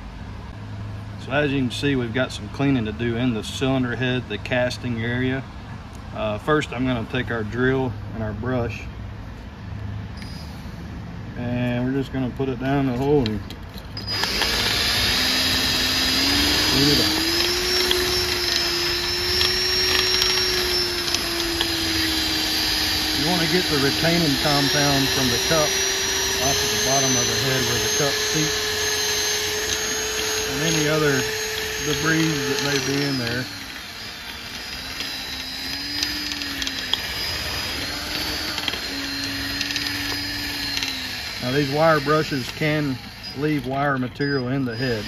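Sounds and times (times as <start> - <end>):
electric drill whining: 12.8 - 45.0
wire brush scratching steel: 14.0 - 45.0.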